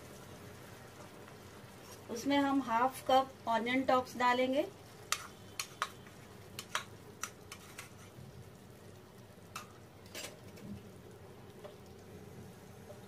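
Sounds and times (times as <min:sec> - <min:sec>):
gravy bubbling in a pan: 0:00.0 - 0:13.0
sharp light pops and clicks: 0:06.6 - 0:07.9.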